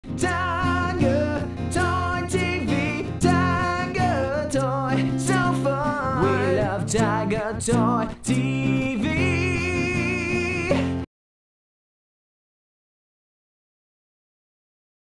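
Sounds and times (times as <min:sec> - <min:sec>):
song with sung melody: 0:00.0 - 0:11.1.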